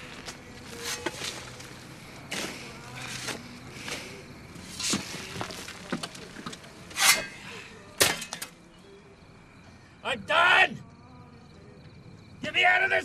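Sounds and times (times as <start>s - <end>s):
rustling: 0.0s - 7.4s
scuffing and scraping on dirt: 0.0s - 7.4s.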